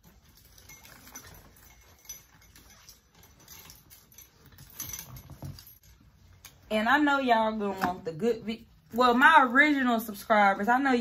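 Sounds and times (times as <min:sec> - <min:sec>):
soft handling clicks and rustles: 0:00.0 - 0:06.8.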